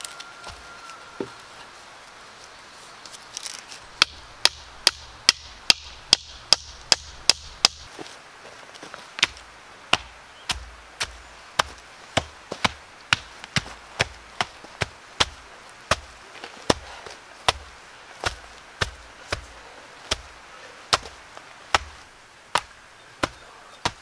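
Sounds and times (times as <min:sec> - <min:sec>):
hand tool striking wood: 0:04.0 - 0:07.9, 0:09.2 - 0:16.1, 0:17.5 - 0:20.3, 0:21.7 - 0:24.0.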